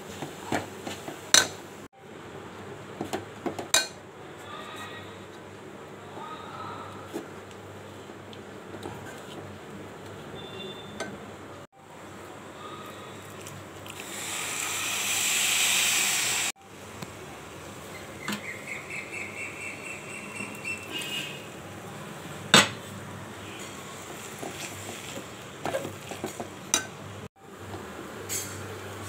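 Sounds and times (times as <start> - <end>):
loud hiss: 14.0 - 16.6.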